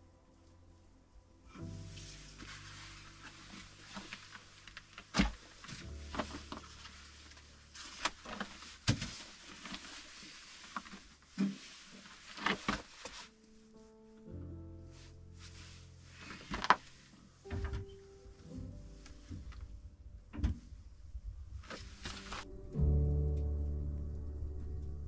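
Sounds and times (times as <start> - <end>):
faint low hum: 0.0 - 11.3, 13.4 - 25.0
fire crackling: 18.2 - 25.0.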